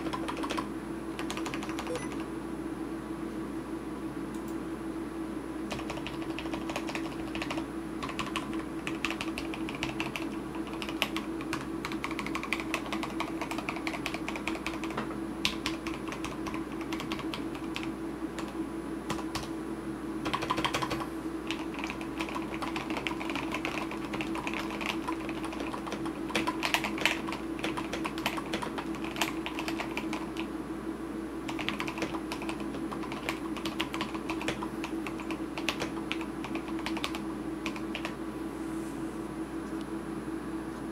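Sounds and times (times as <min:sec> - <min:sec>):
mechanical keyboard typing: 0:00.0 - 0:02.2, 0:05.7 - 0:19.5, 0:20.2 - 0:30.5, 0:31.5 - 0:38.2.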